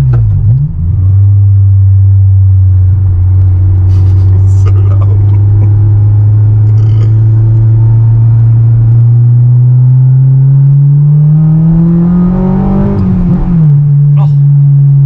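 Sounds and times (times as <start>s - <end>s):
car engine revving: 0.0s - 15.0s.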